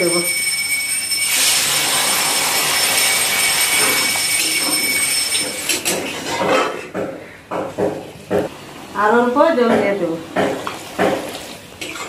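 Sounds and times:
water sizzling in hot oil: 1.3s - 4.2s
metal spatula scraping pan: 3.8s - 6.9s.

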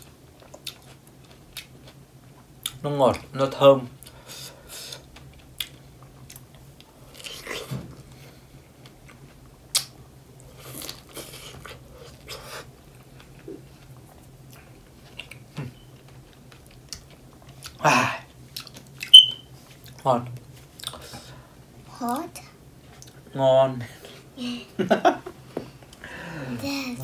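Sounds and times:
people chewing strawberries: 0.0s - 3.2s, 4.0s - 20.0s, 20.6s - 21.4s, 22.9s - 23.3s
wet mouth smacks and clicks: 9.7s - 9.9s.

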